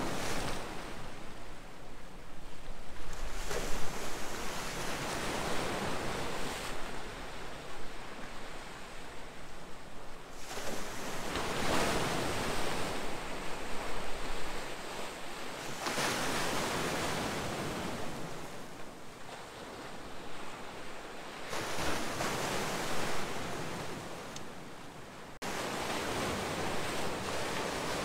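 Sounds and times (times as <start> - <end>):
sea waves breaking on rocks: 10.4 - 18.7, 20.3 - 24.4, 25.4 - 28.0.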